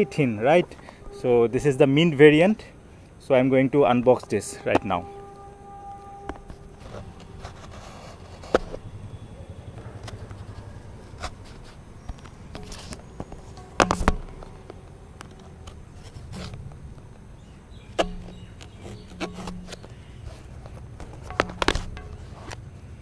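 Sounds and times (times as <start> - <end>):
blade scraping cardboard: 6.4 - 8.9, 18.0 - 22.6
box and blade knocking on table: 21.1 - 22.2.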